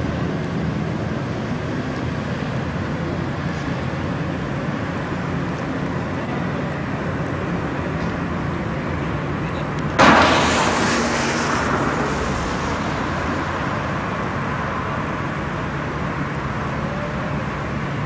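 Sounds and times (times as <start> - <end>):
loud rush of passing vehicle: 10.0 - 17.5
street noise: 10.0 - 18.0.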